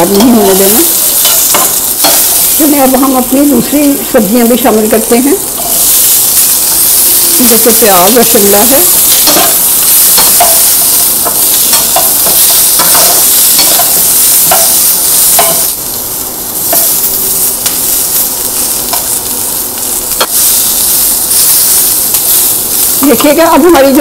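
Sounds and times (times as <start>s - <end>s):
vegetables sizzling in oil: 0.0s - 24.0s.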